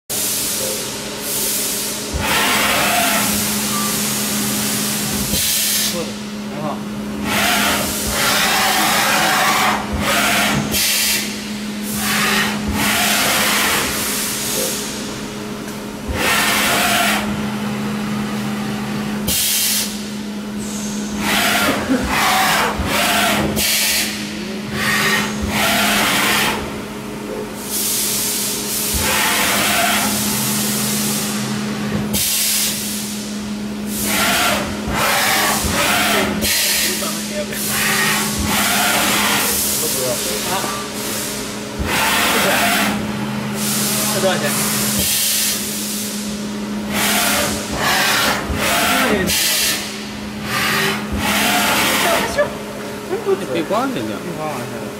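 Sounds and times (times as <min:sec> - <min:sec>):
steady machine hum: 0:00.1 - 0:54.9
compressed air hiss bursts: 0:19.3 - 0:20.0.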